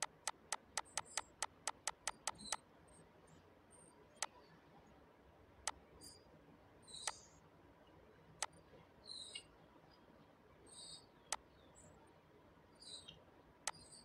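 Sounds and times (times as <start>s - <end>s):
computer mouse clicking: 0.0s - 2.6s.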